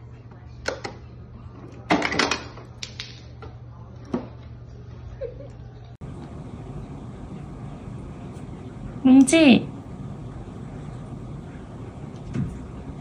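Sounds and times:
steady low hum: 0:03.6 - 0:13.0.

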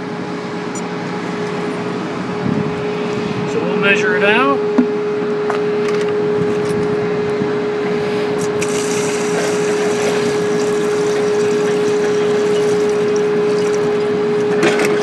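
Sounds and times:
steady hum: 0:00.0 - 0:15.0
water pouring into plastic pitcher: 0:08.6 - 0:14.0.

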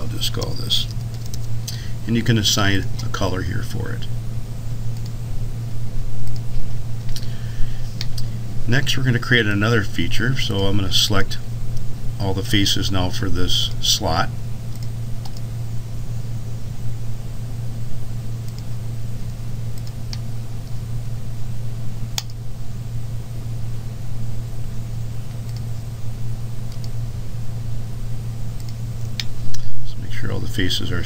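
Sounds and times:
low hum: 0:00.0 - 0:31.0
computer mouse clicks: 0:05.0 - 0:05.2, 0:06.2 - 0:06.5, 0:14.7 - 0:15.5, 0:19.7 - 0:20.3, 0:22.2 - 0:22.4, 0:25.3 - 0:25.8, 0:26.7 - 0:27.0, 0:28.6 - 0:29.7.

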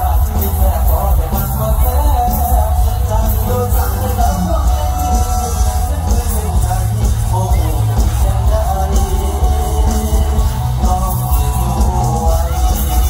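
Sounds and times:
live band amplified music: 0:00.0 - 0:13.0.

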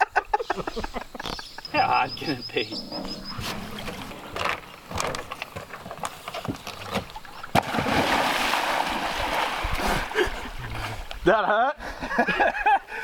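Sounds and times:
churning splashing water: 0:01.8 - 0:11.1
small knocks and splashes: 0:02.8 - 0:09.8
person plunging into water: 0:02.8 - 0:11.1.

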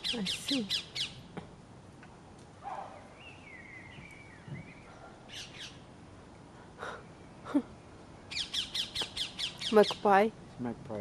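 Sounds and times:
bird warbling: 0:02.6 - 0:05.8
harsh bird calls: 0:02.6 - 0:05.9, 0:06.8 - 0:10.1.

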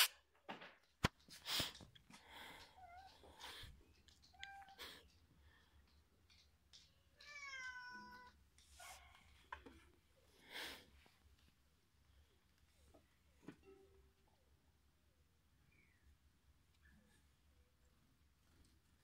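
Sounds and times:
cat meowing: 0:07.2 - 0:08.4.

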